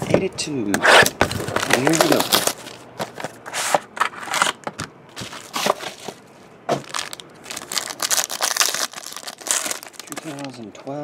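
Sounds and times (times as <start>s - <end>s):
plastic foil pack crinkling: 1.3s - 3.4s, 6.8s - 10.7s.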